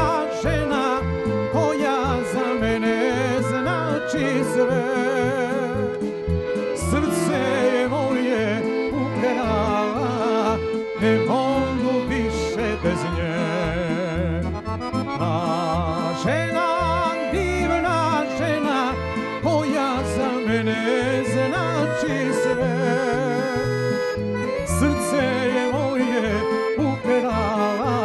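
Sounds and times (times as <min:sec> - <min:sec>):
folk band playing: 0:00.0 - 0:28.0
man singing with vibrato: 0:00.0 - 0:28.0.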